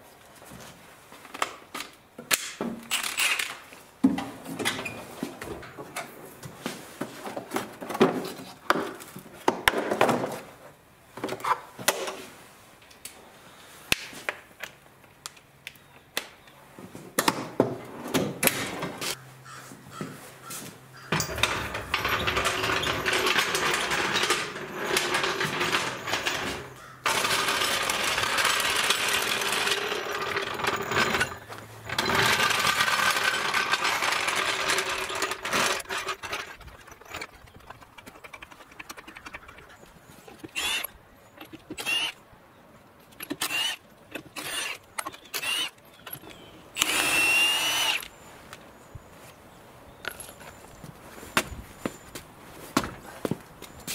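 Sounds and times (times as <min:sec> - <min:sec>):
floor jack rolling on concrete: 0:21.0 - 0:42.1
metal tools clinking: 0:21.0 - 0:42.1, 0:50.0 - 0:52.2.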